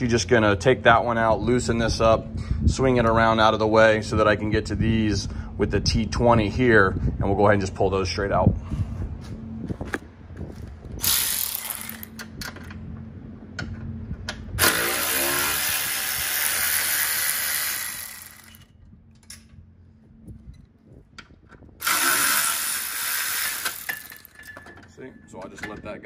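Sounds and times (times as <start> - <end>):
air ratchet running: 11.0 - 12.3, 14.6 - 18.7, 21.8 - 24.5
tool and bolt clicks: 18.1 - 19.6.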